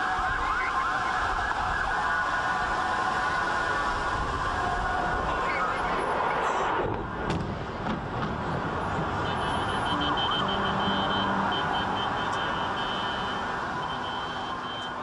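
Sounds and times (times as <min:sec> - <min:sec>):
loud city noise: 0:00.0 - 0:15.0
car alarm tones: 0:09.2 - 0:15.0.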